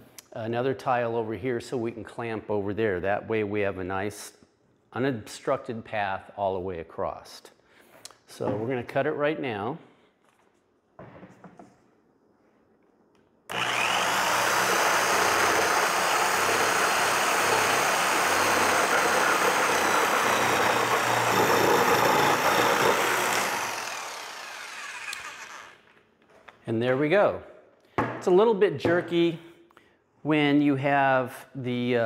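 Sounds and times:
jigsaw cutting plastic tiles: 13.5 - 25.9.

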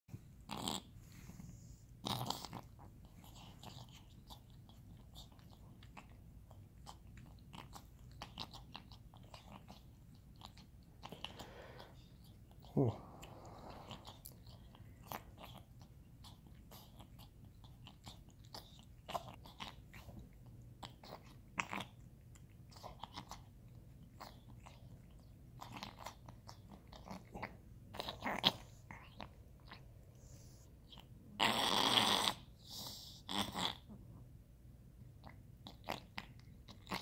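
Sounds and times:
cat licking: 0.5 - 33.8, 35.1 - 37.0.

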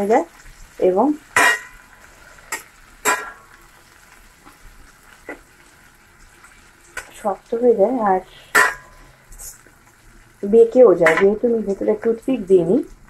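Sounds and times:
prawns sizzling in a pan: 0.0 - 13.0
spatula scraping and knocking pan: 1.3 - 1.9, 2.5 - 3.6, 8.5 - 9.6, 11.0 - 11.5.

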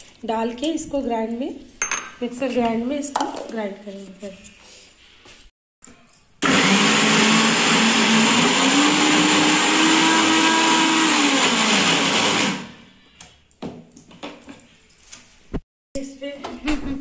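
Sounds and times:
mixer grinder motor running: 6.4 - 12.8.

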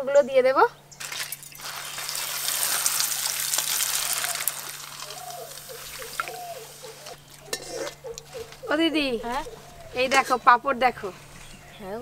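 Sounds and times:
food sizzling in hot oil: 1.0 - 7.6.

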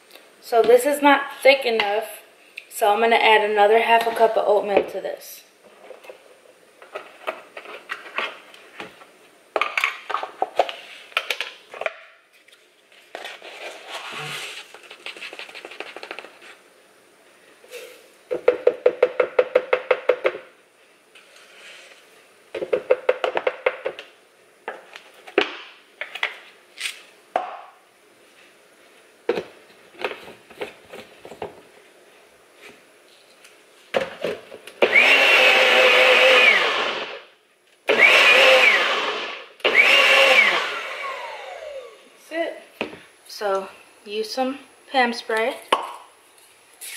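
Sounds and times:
blender running: 34.8 - 37.3, 37.9 - 42.1.

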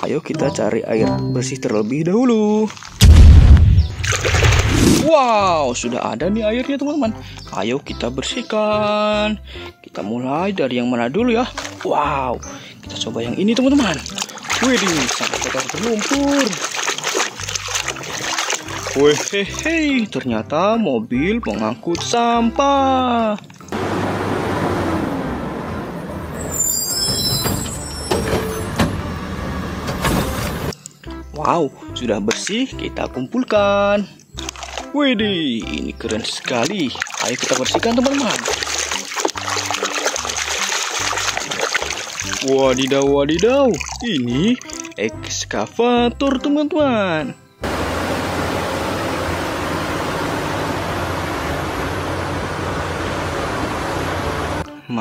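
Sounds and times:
diesel truck engine running: 23.8 - 26.4, 47.6 - 54.6
brakes squealing: 23.8 - 30.7.

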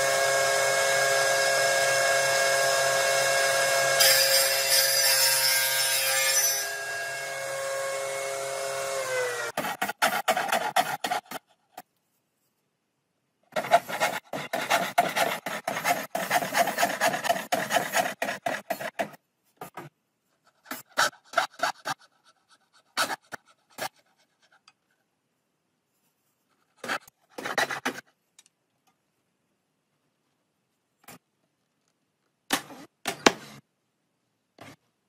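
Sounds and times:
hand tool scraping wood: 9.5 - 11.8, 13.5 - 19.9.

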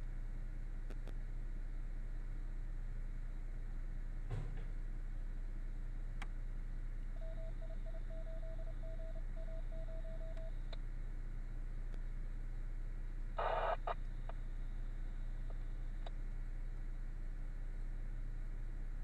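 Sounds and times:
steady low hum: 0.0 - 19.0
click: 0.9 - 1.2, 6.2 - 6.4, 15.5 - 16.2
short electronic beeps: 7.2 - 10.7.

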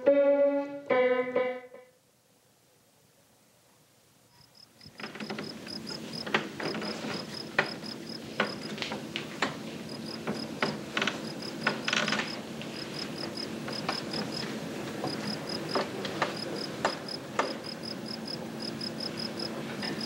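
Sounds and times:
cricket chirping: 4.3 - 8.8, 9.8 - 20.0
footsteps on wooden ladder rungs: 4.9 - 12.8.

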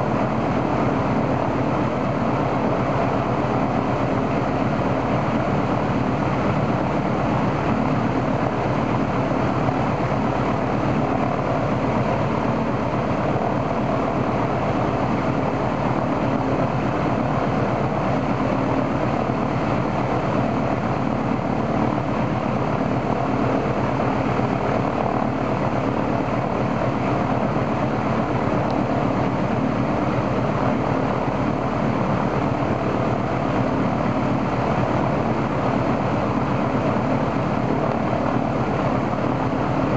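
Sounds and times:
radial aircraft engine running: 0.0 - 39.9.

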